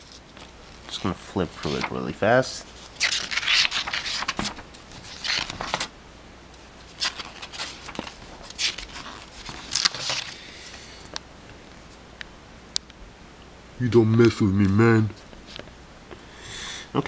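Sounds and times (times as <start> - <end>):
paper pages being flipped: 0.0 - 2.1, 2.7 - 5.9, 6.9 - 10.8.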